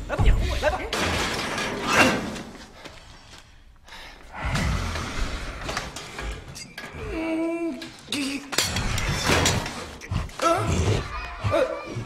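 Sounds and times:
metal cage bars clanging and rattling: 0:00.9 - 0:02.4, 0:07.8 - 0:10.0
metal scraping: 0:07.8 - 0:10.4.

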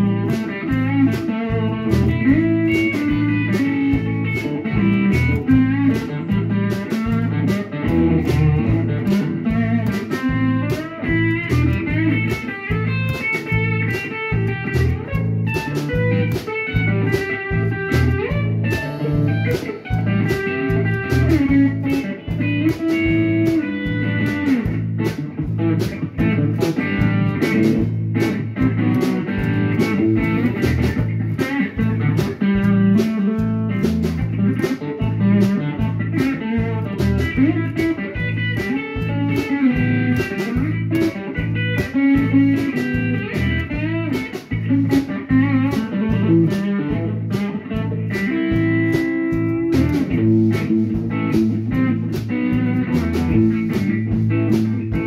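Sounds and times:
drum kit beat: 0:00.0 - 0:55.0
electric bass: 0:00.0 - 0:55.0
electric guitar: 0:00.0 - 0:55.0.

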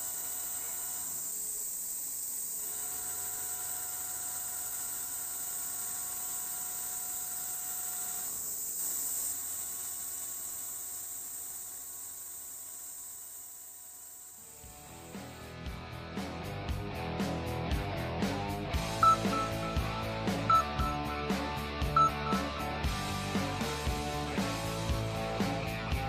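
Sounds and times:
milling machine cutting steel: 0:00.0 - 0:15.4.

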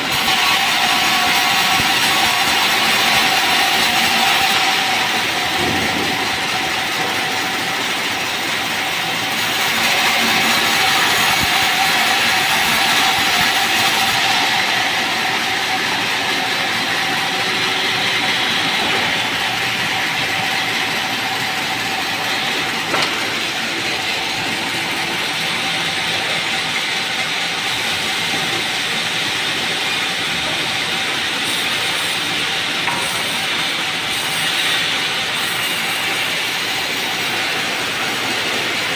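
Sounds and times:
band saw running: 0:00.0 - 0:38.9
sharp knock: 0:32.9 - 0:33.3.

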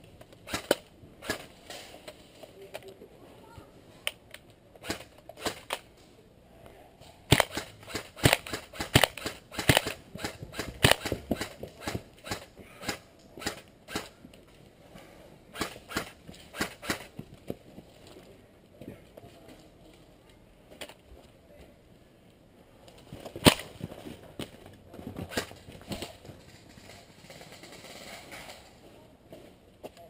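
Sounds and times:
airsoft gun shots: 0:00.4 - 0:01.5, 0:07.3 - 0:14.1, 0:15.5 - 0:17.1, 0:23.4 - 0:23.7.

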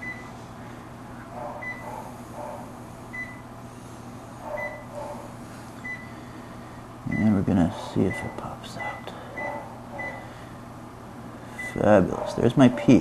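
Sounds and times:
monitor beeps: 0:00.0 - 0:00.3, 0:01.6 - 0:01.9, 0:03.1 - 0:03.4, 0:04.6 - 0:04.9, 0:05.8 - 0:06.1, 0:07.1 - 0:07.4, 0:08.1 - 0:10.2, 0:11.6 - 0:11.9
low equipment hum: 0:00.0 - 0:13.0.

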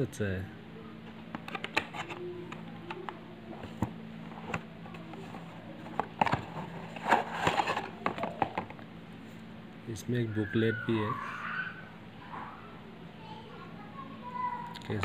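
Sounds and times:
plastic and paper crinkling: 0:01.0 - 0:08.8.

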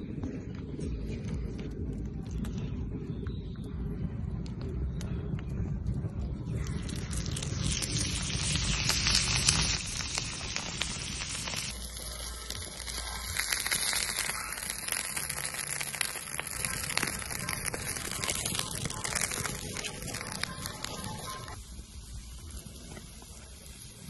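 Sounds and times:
meat sizzling on griddle: 0:06.9 - 0:24.0.

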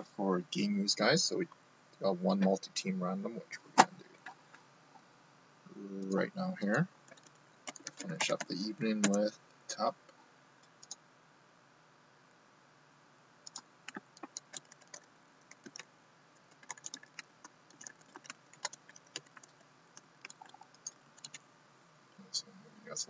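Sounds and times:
laptop keyboard typing: 0:07.1 - 0:09.3, 0:10.8 - 0:11.0, 0:13.4 - 0:15.9, 0:16.5 - 0:21.4.

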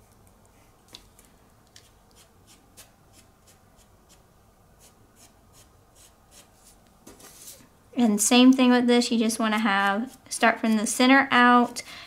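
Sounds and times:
foam brush strokes: 0:01.8 - 0:07.7.

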